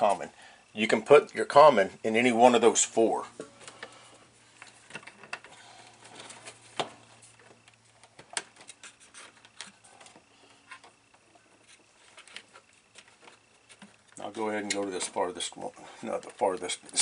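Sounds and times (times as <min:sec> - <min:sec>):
faint low hum: 0:00.0 - 0:17.0
hands handling wires: 0:03.4 - 0:15.4.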